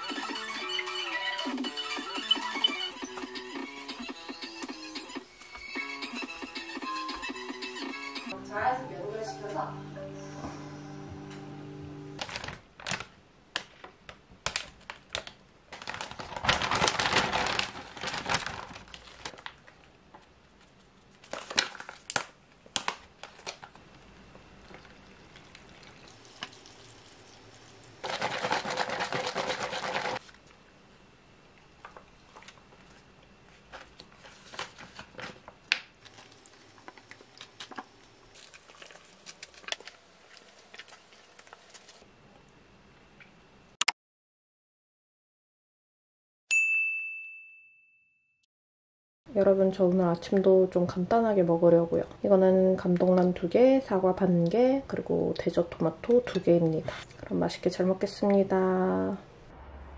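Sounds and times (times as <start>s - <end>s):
paper pouch crinkling: 12.2s - 13.7s, 14.5s - 20.0s, 20.6s - 24.1s, 28.0s - 30.4s, 32.3s - 42.0s
water pouring into pouch: 24.6s - 30.2s.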